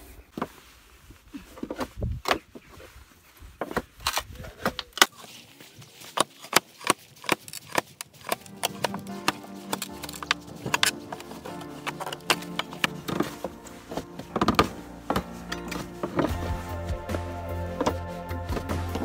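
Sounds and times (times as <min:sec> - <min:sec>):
background music: 0:08.2 - 0:19.0.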